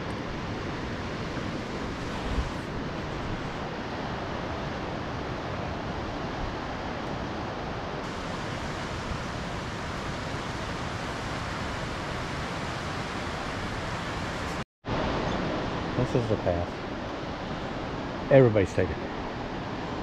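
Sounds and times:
waterfall and rapids rushing: 0.0 - 20.0.

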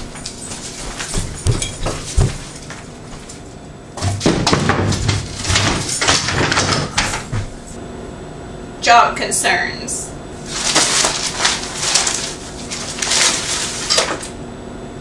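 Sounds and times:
wooden easel clattering: 0.1 - 3.3, 4.0 - 7.6, 10.5 - 14.3.

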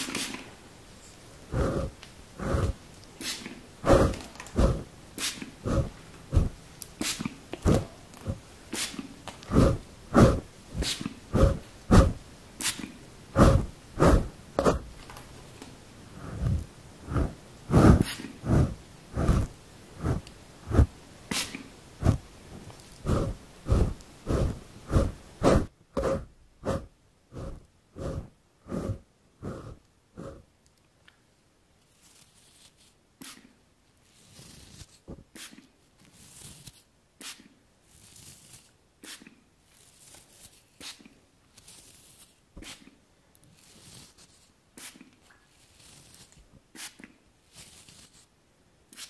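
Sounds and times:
hand rubbing furry windscreen: 1.5 - 12.8, 13.4 - 15.0, 16.2 - 30.4.

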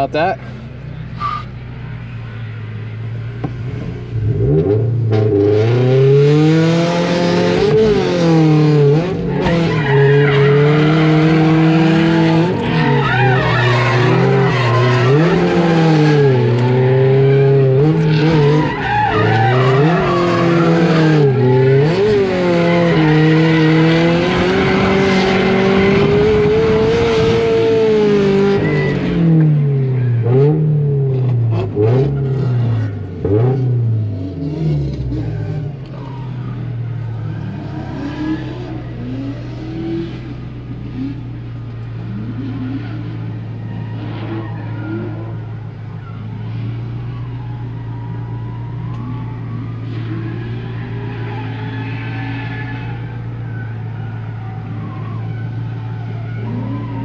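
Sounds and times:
car engine revving: 0.0 - 47.5
tyres screeching: 8.9 - 29.4.

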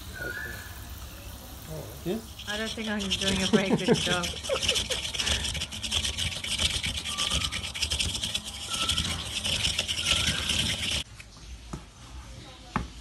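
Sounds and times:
coconut scraper rasping: 2.1 - 11.1.

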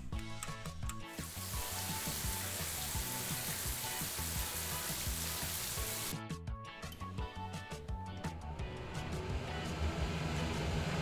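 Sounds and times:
upbeat guitar music: 0.0 - 10.8
steady hiss: 1.2 - 6.1.

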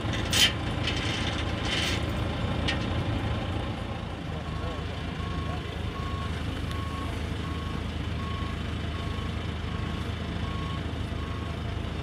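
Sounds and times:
diesel engine running: 0.0 - 12.0
reversing alarm beeping: 4.5 - 11.6.

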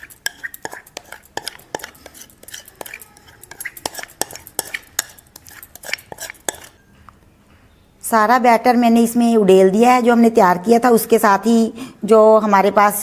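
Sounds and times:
spoon clinking against a dish: 0.0 - 6.9.

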